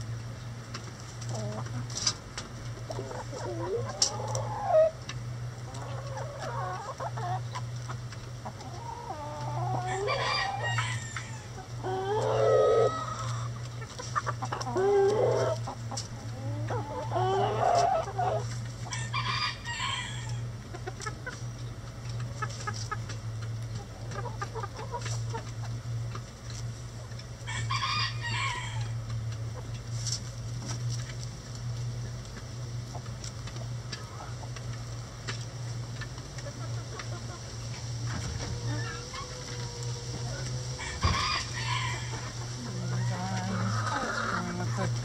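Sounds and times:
chickens clucking: 0.0 - 45.0
steady low hum: 0.0 - 45.0
rooster crowing: 9.5 - 13.1, 17.1 - 20.4, 27.4 - 29.0, 38.6 - 44.4.

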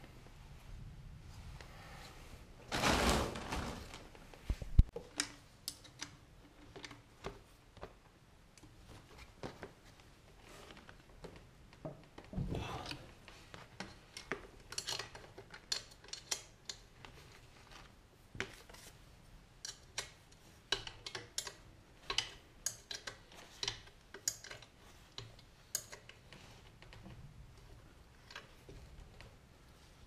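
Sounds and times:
rustling: 0.0 - 5.0
small metallic clicks and taps: 4.8 - 8.7, 13.6 - 17.2, 19.6 - 29.3.

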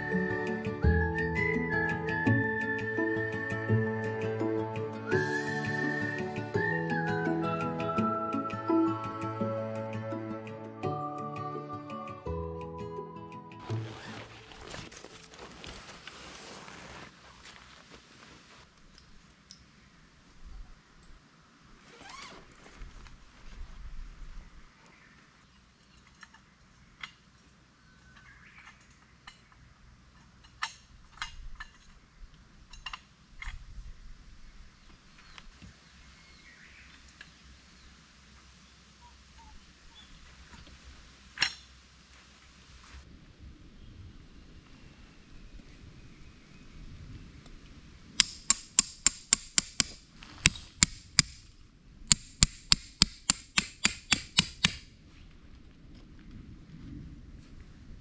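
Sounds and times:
hammer striking metal stake: 48.2 - 51.5, 52.1 - 54.9.

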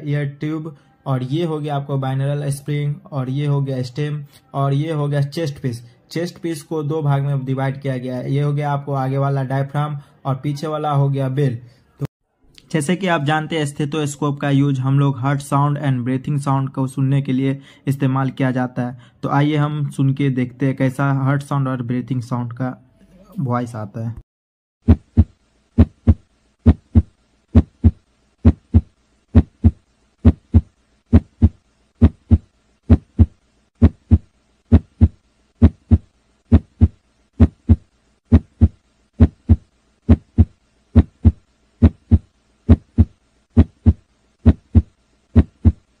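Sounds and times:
heartbeat through stethoscope: 24.8 - 45.9.

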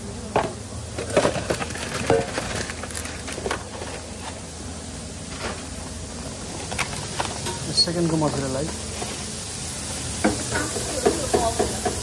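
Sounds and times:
metal bowl and utensils clattering: 1.0 - 4.0, 6.7 - 8.4.

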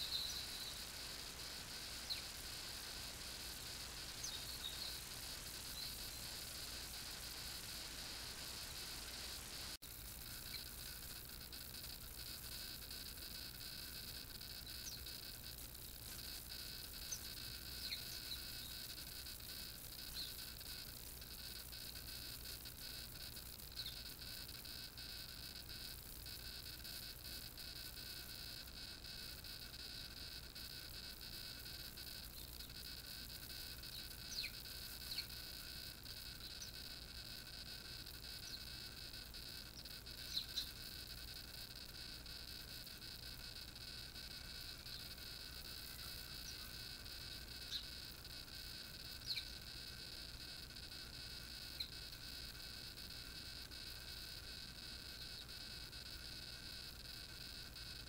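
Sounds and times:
high-pitched whine: 0.0 - 22.1
small birds chirping: 0.0 - 50.3, 51.5 - 52.4, 55.1 - 55.6.

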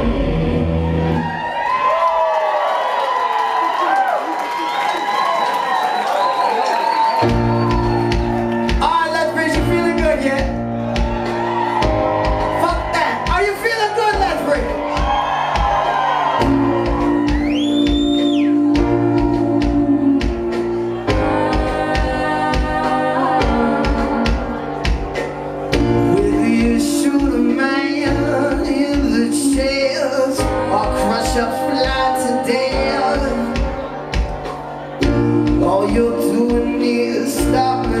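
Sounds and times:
rock band playing live: 0.0 - 1.5, 7.2 - 38.0
person singing lead vocal: 16.4 - 38.0.

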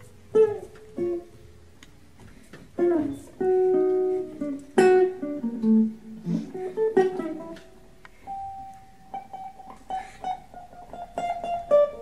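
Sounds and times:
guitar plucked notes and chords: 0.0 - 12.0.

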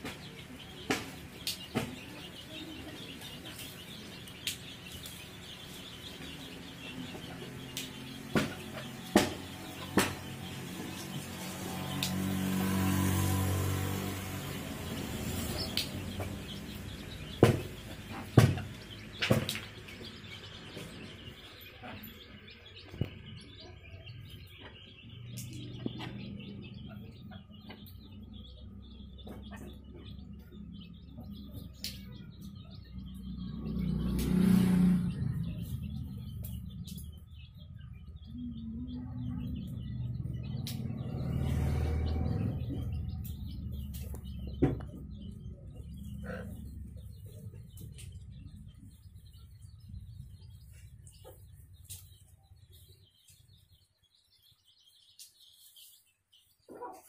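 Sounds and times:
chicks peeping: 0.0 - 57.0
low rumbling: 5.2 - 52.8
sharp knocks: 8.2 - 10.4, 17.3 - 19.8.

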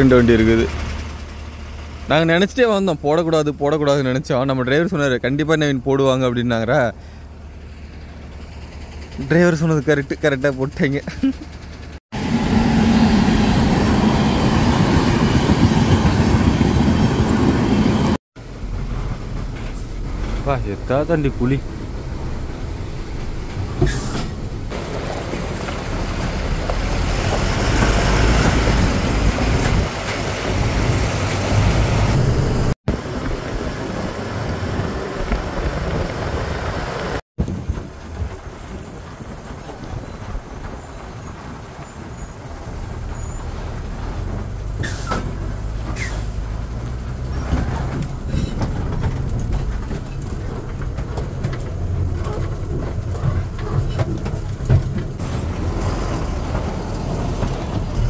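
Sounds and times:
lorry diesel engine: 0.0 - 58.0
cab rattling: 35.3 - 58.0
air brake hisses: 44.8 - 45.3, 45.9 - 46.4.

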